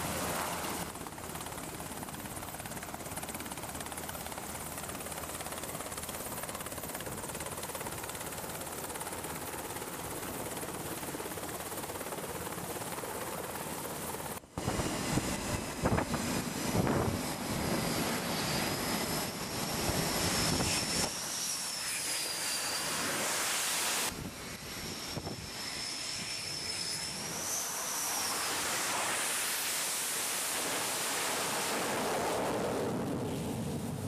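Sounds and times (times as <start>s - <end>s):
jet turbine whine: 0.0s - 34.0s
rushing jet noise: 14.6s - 34.0s.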